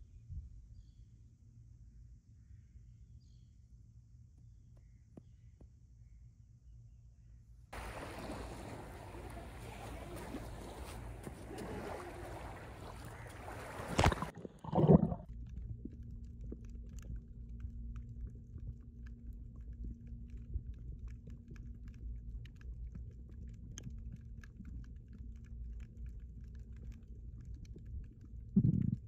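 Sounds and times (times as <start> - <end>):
loud water burst: 7.8 - 15.2
small waves washing on beach: 7.8 - 15.2
steady low hum: 7.8 - 21.2
underwater low rumble: 7.8 - 29.0.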